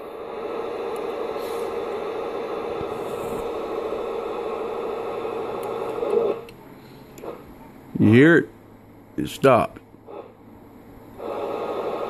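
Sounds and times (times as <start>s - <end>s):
static hiss with buzzing hum: 0.0s - 12.0s.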